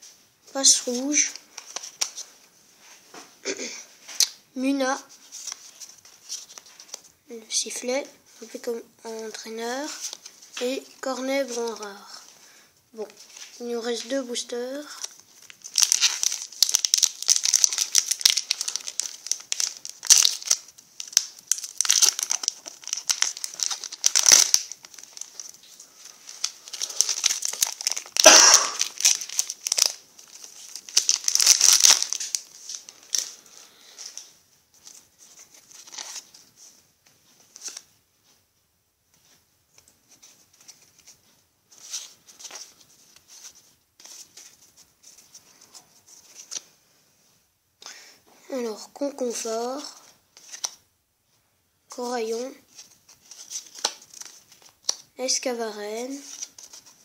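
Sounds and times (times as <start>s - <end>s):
cards rustling: 0.7s - 2.3s, 4.2s - 7.1s, 7.7s - 12.4s, 13.0s - 37.9s, 39.2s - 46.7s, 49.1s - 50.8s, 52.0s - 57.0s
foil wrapper crinkling and tearing: 14.9s - 36.5s, 49.2s - 50.8s, 52.7s - 55.4s, 56.1s - 57.0s.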